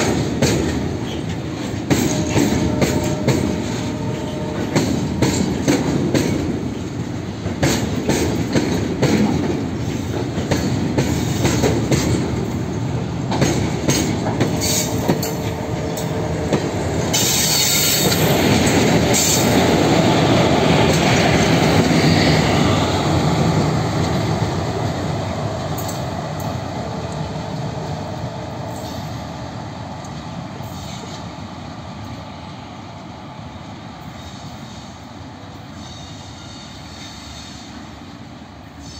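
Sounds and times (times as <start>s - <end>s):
train wheel squeals: 0.0s - 7.0s, 9.6s - 12.3s, 13.9s - 16.3s, 17.0s - 19.8s, 28.6s - 29.3s, 30.6s - 31.5s, 34.0s - 38.0s, 38.7s - 38.9s
wheels clicking over rail joints: 0.0s - 22.0s
freight train rolling past: 0.0s - 38.9s.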